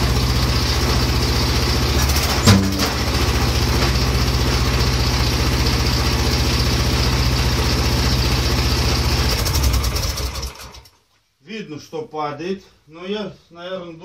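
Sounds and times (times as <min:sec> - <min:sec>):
excavator engine running: 0:00.1 - 0:10.8.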